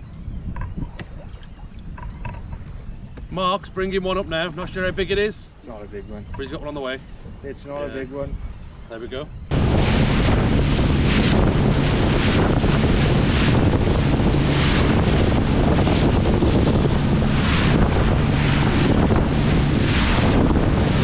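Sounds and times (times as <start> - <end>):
outboard engine humming: 0.0 - 21.0
wind buffeting microphone: 0.0 - 21.0
rush of wake and spray: 9.5 - 21.0.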